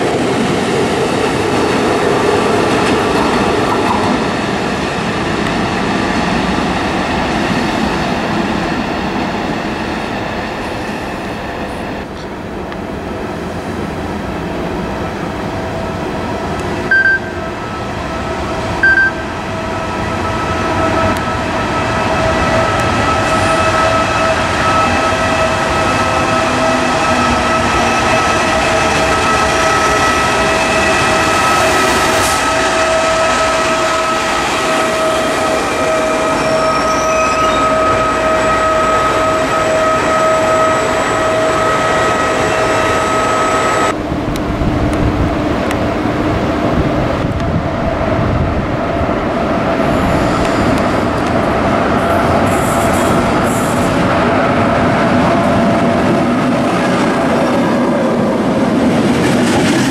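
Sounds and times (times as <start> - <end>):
train rolling past with electric whine: 0.0 - 59.9
short high beeps: 16.9 - 17.4, 18.8 - 19.3.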